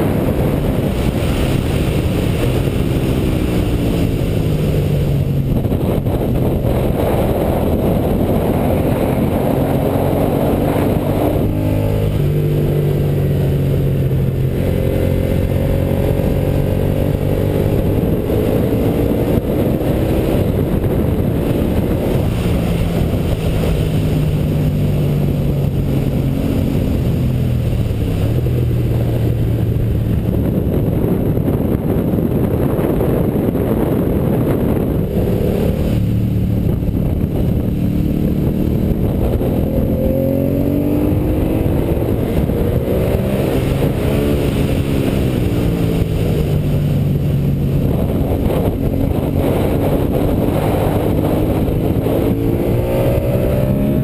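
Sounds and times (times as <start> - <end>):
motorcycle engine revving: 0.0 - 54.0
wind rushing: 0.0 - 54.0.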